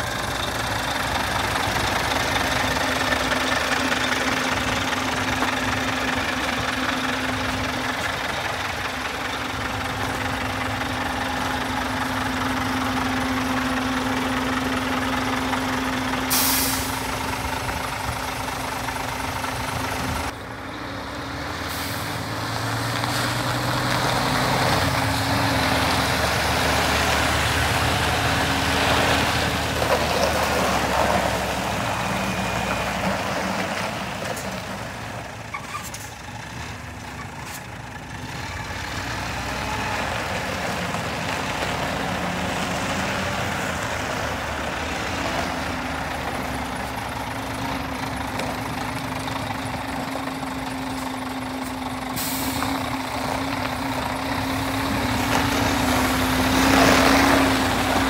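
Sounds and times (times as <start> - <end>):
diesel truck engine idling: 0.0 - 22.5, 30.6 - 58.0
air hiss: 16.3 - 17.1.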